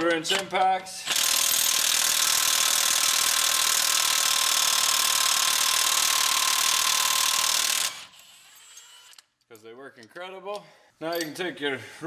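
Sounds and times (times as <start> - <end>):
impact wrench rattling: 0.0 - 8.8.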